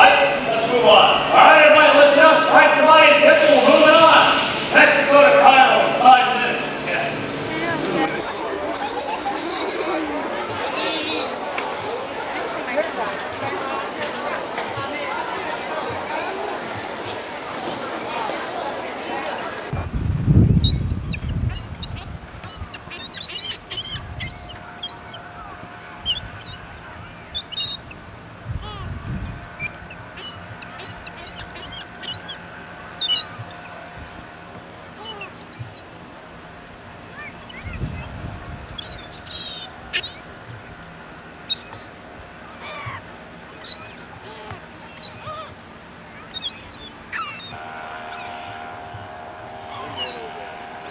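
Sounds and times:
gulls calling: 0.0s - 50.9s
low rumble on microphone: 19.7s - 41.2s.

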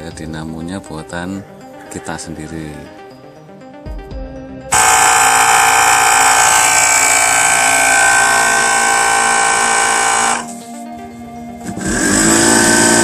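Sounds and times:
electric grater motor whine: 4.7s - 10.6s, 11.6s - 13.0s.

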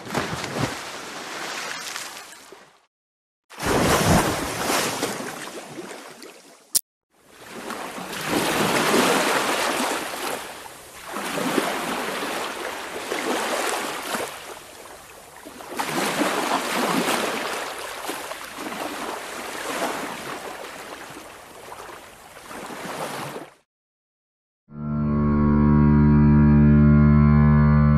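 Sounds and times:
ocean waves washing onto shore: 7.3s - 23.5s.

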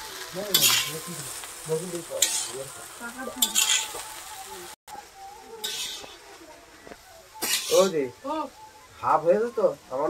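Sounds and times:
steady sizzle: 0.0s - 10.0s
spatula scraping a pan: 0.4s - 1.3s, 2.1s - 4.0s, 5.6s - 6.3s, 7.3s - 8.0s.

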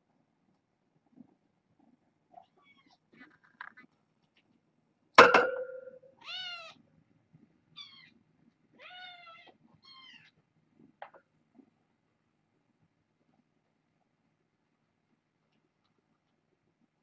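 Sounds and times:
sharp knock with ringing tone: 5.2s - 6.0s
kittens meowing: 8.8s - 10.4s.

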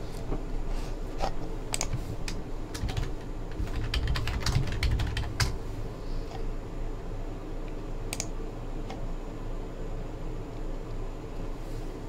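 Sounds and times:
computer keyboard typing: 1.7s - 5.6s, 8.1s - 8.3s.

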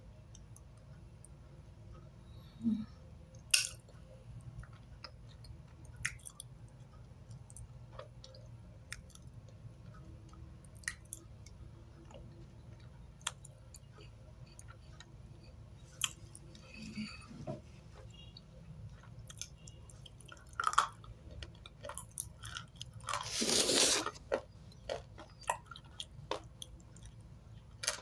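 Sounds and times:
mouth chewing with crunches: 18.1s - 28.0s.

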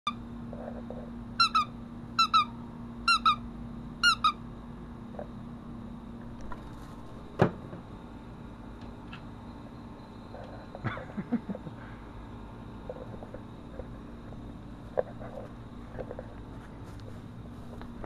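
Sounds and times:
steady low hum: 0.1s - 18.0s
squeaky dog toy squeaking: 1.4s - 2.5s, 3.1s - 3.4s, 4.0s - 4.4s.

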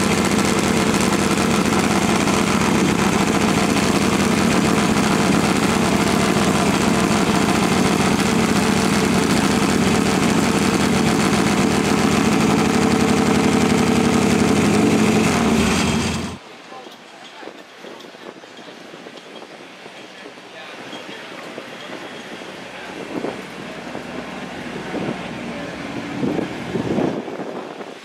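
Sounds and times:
motorcycle engine idling: 0.0s - 16.4s.

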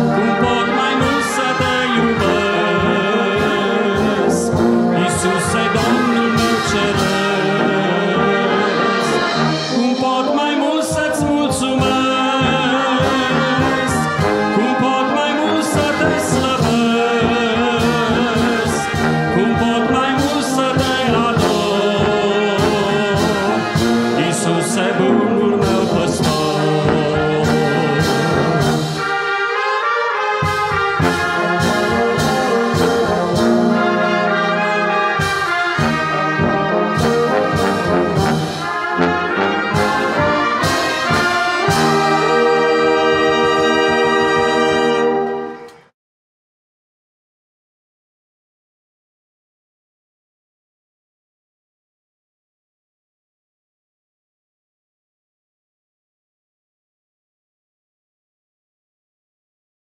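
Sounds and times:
brass band playing a slow hymn: 0.0s - 45.9s.

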